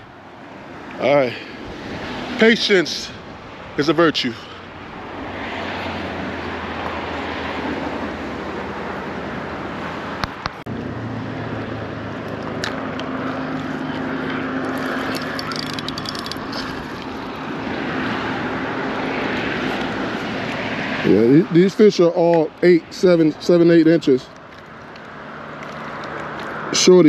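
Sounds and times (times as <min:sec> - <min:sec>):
outdoor noise: 0:00.0 - 0:27.0
steady engine drone: 0:00.0 - 0:27.0
fishing reel clicking: 0:14.7 - 0:17.1.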